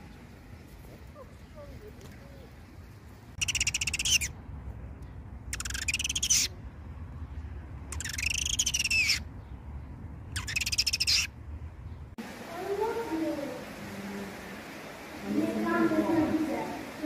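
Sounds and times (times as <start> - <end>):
bird harsh buzzy calls: 3.4 - 4.4, 5.5 - 6.6, 7.9 - 9.3, 10.3 - 11.4.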